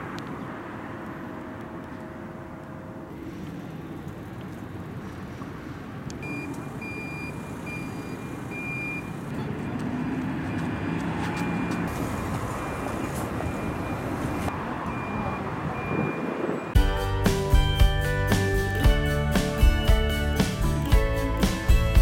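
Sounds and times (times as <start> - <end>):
road traffic: 0.0 - 22.0
electronic warning beeper: 6.2 - 9.2.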